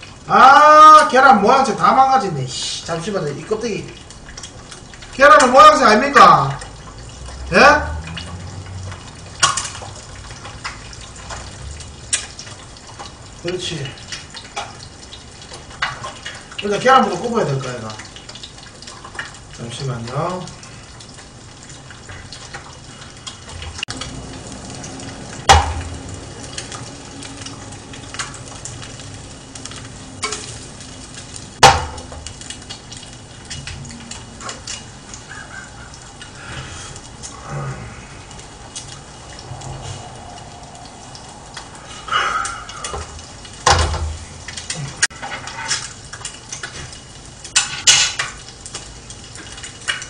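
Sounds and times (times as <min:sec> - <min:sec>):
eggs sizzling in oil: 0:00.0 - 0:50.0
utensil knocking against frying pans: 0:25.5 - 0:25.9, 0:31.6 - 0:32.3, 0:47.6 - 0:48.4.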